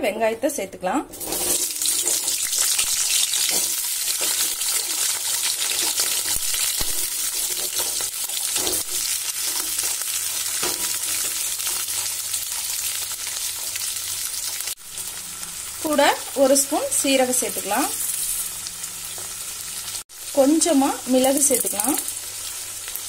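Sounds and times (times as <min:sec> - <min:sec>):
shallots sizzling in hot oil: 0:01.1 - 0:23.0.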